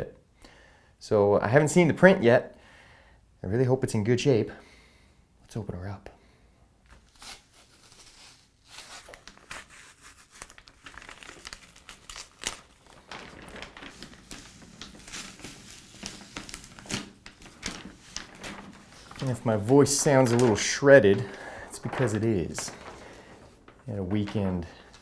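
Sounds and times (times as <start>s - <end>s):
paper crinkling and rustling: 7.1s - 25.0s
paper ripping: 7.1s - 25.0s.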